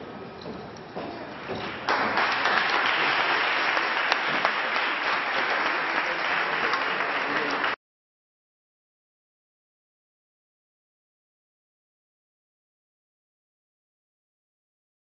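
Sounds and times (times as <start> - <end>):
audience applauding: 1.6 - 7.8.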